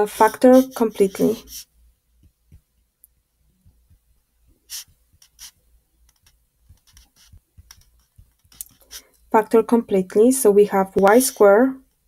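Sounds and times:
stylus scratching on touchscreen: 0.0s - 1.7s, 4.7s - 9.1s, 10.9s - 11.6s.

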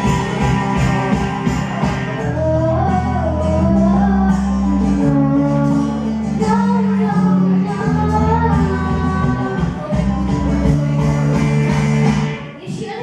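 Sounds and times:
country pop backing track: 0.0s - 13.0s
girl singing into microphone: 2.2s - 11.7s, 12.4s - 13.0s.

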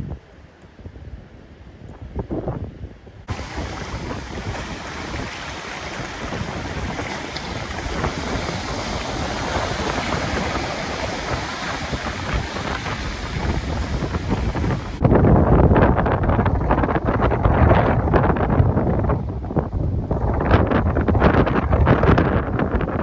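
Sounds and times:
wind buffeting microphone: 0.0s - 23.0s
surf breaking on beach: 3.3s - 15.2s.

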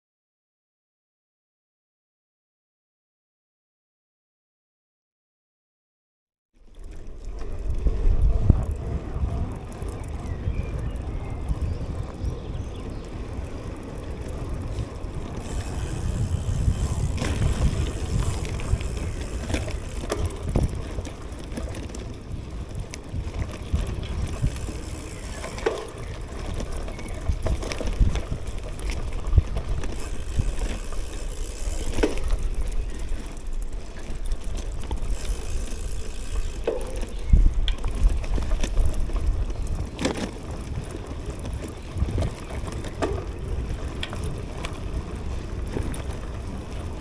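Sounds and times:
bike clicks and rattles: 6.6s - 47.0s
wind buffeting microphone: 6.8s - 47.0s
tyre rumble: 11.7s - 47.0s.

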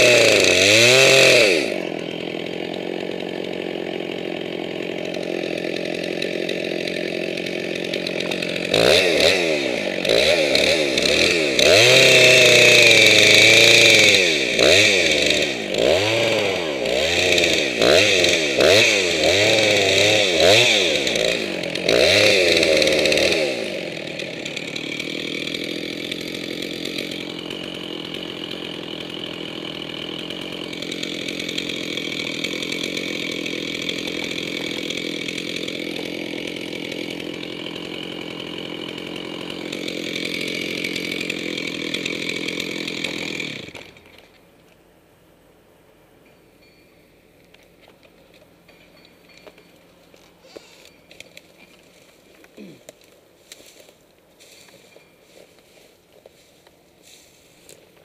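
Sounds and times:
chainsaw cutting wood: 0.0s - 44.8s, 47.4s - 58.0s.

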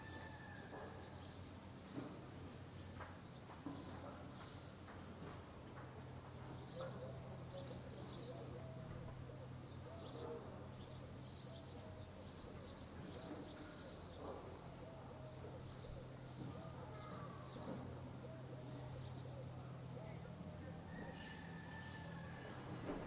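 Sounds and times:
small birds chirping: 6.4s - 22.2s.

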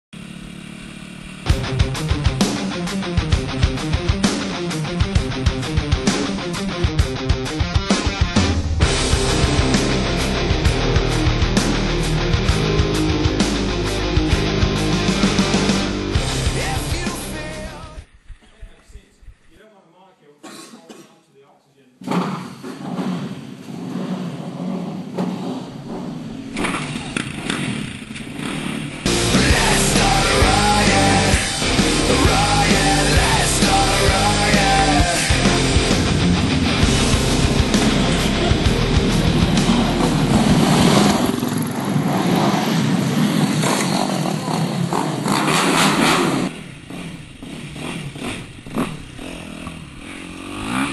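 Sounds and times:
motorbike engine running: 0.1s - 7.3s, 23.1s - 50.9s.

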